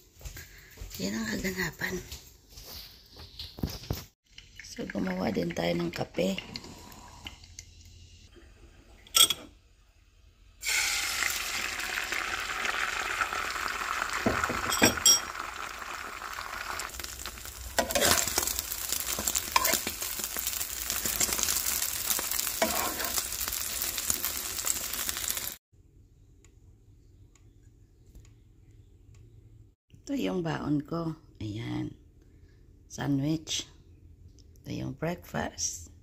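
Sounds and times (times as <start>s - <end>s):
eggs sizzling in frying pan: 10.6s - 25.6s
spatula scraping pan: 17.8s - 24.0s.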